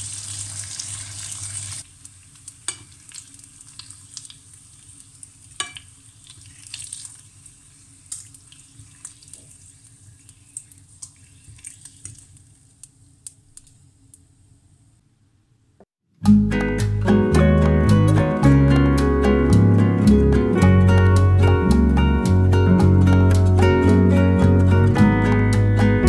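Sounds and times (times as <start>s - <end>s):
bacon fat sizzling in a pan: 0.0s - 13.7s.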